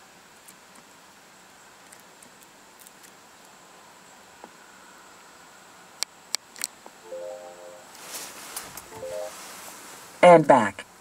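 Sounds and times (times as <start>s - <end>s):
outdoor background hiss: 0.0s - 11.0s
thin high whine: 7.1s - 10.2s.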